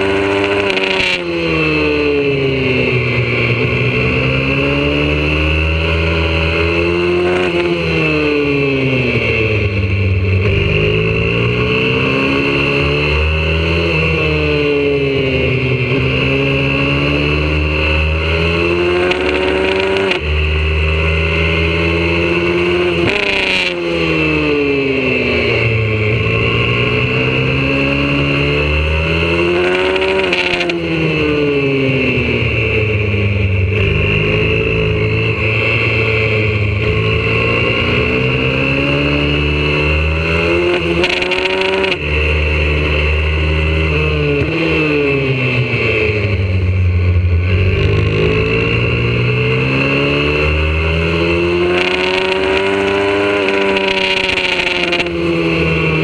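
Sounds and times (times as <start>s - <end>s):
motorbike engine revving: 0.0s - 56.0s.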